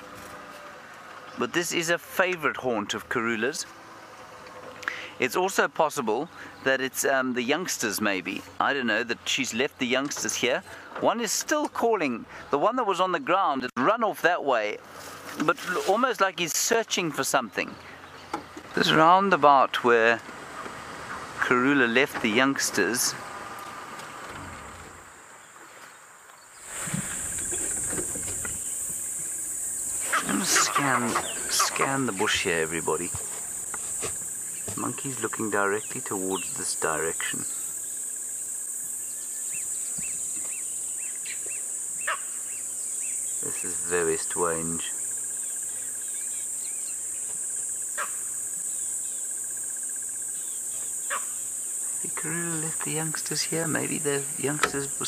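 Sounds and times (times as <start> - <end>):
insects droning: 0.0 - 55.0
bird chirps: 25.4 - 33.3, 34.3 - 43.9, 45.0 - 52.0.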